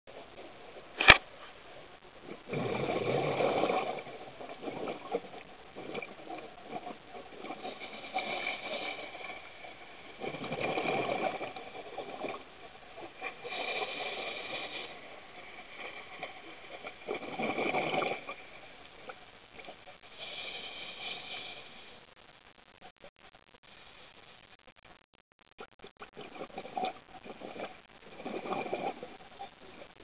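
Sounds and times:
crackly hiss: 0.1s - 30.0s
sharp click: 1.0s - 1.3s
underwater bubbles burbling: 2.1s - 21.5s, 26.0s - 30.0s.

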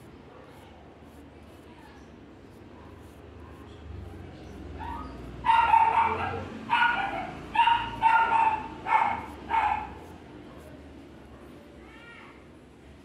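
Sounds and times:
dog barking high-pitched: 4.8s - 10.1s.

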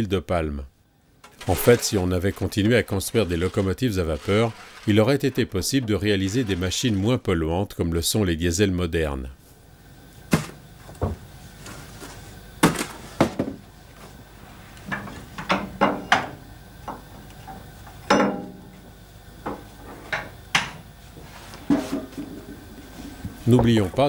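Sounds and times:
shovel scraping against metal: 1.3s - 7.2s.

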